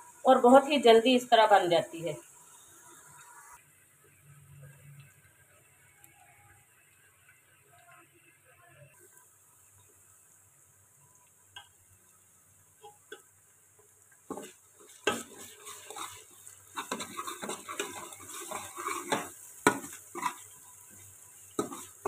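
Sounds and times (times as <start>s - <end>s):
paste sizzling in oil: 0.0s - 22.0s
metal spoon scraping pot: 14.3s - 20.9s, 21.6s - 22.0s.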